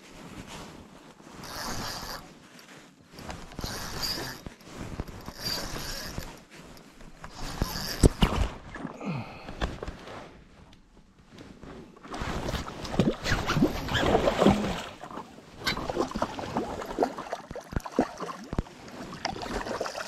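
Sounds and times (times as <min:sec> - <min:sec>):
fishing reel whirring: 0:01.4 - 0:02.2, 0:03.5 - 0:04.4, 0:05.2 - 0:06.4, 0:07.3 - 0:08.3.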